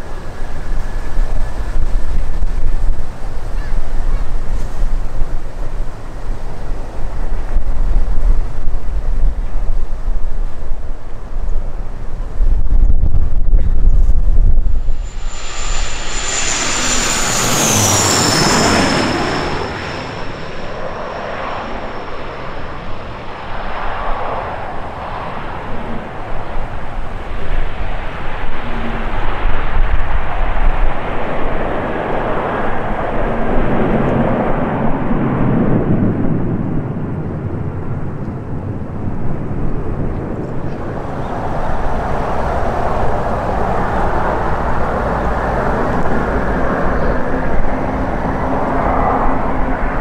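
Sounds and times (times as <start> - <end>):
jet airliner passing overhead: 14.4 - 50.0.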